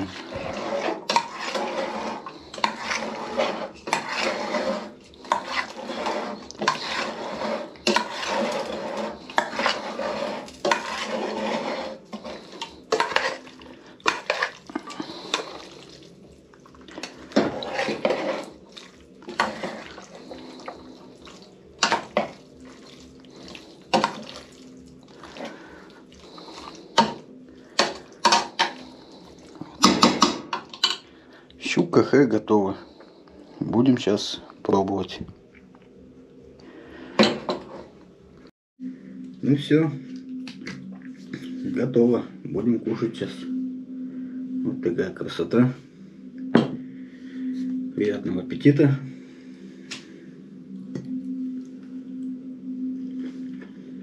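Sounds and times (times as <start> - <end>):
metal utensils scraping a pot: 0.0 - 16.1, 16.8 - 31.1.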